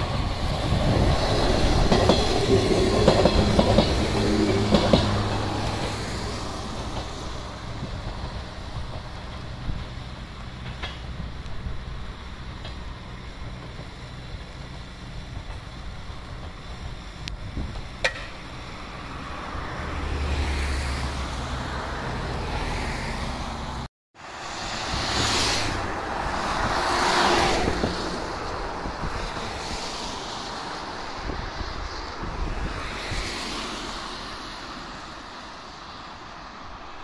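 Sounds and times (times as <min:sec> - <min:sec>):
passing vehicles rumbling: 0:00.0 - 0:37.0.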